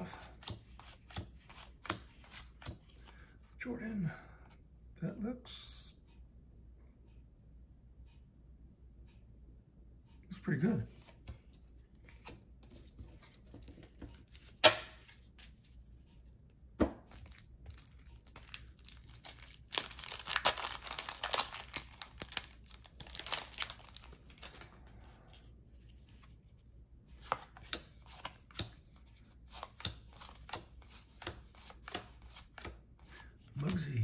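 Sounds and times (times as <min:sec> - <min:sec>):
cellophane wrapper crinkling: 0:17.1 - 0:24.8.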